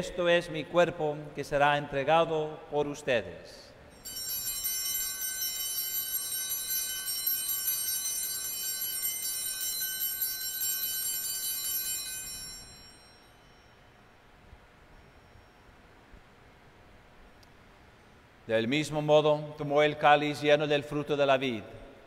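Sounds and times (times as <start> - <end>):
altar bells ringing: 3.9 - 14.3.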